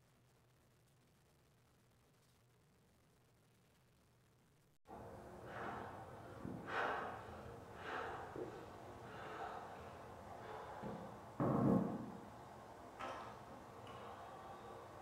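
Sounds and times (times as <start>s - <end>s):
man exhaling hard: 5.5s - 11.2s.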